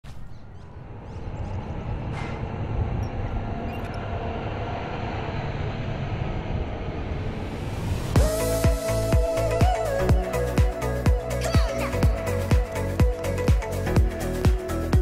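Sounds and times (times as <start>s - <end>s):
low rumble of vehicle noise: 0.0s - 9.0s.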